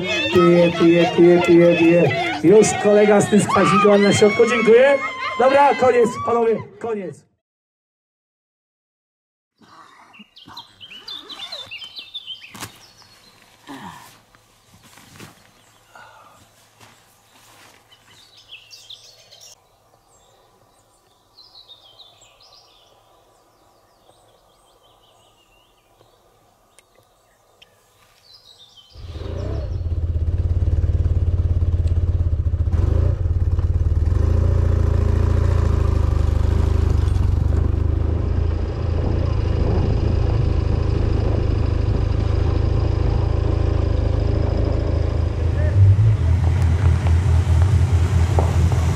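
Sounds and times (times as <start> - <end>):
faint bird chirps: 9.6 - 13.5
motorcycle engine running: 29.0 - 48.9.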